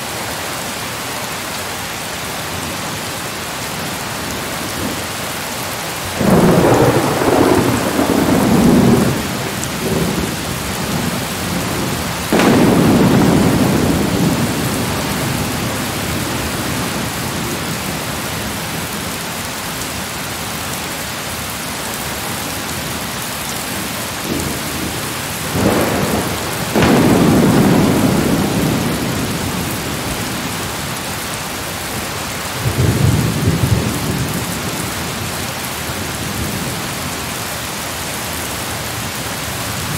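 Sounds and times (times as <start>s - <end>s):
steady rain hiss: 0.0s - 39.9s
thunder rumbling: 6.1s - 19.0s, 23.7s - 31.1s.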